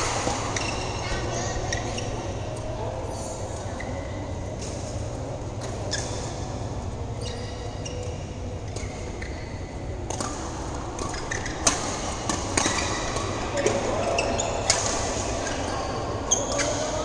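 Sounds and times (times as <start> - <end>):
shoes squeaking on court: 0.0 - 17.0
steady low hum: 0.0 - 17.0
rackets hitting shuttlecock: 10.0 - 15.5.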